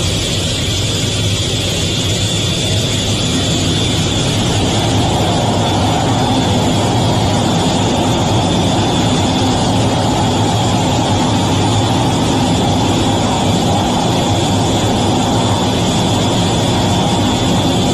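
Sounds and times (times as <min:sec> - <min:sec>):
jet engines running: 0:00.0 - 0:17.9.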